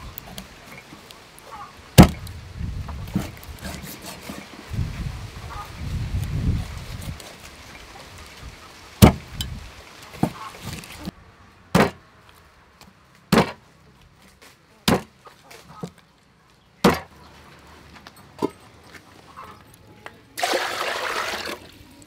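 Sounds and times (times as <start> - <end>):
cleaver chopping fish on wood: 2.0 - 2.2, 9.0 - 9.2, 11.7 - 12.0, 13.3 - 13.6, 14.8 - 15.1, 16.8 - 17.1.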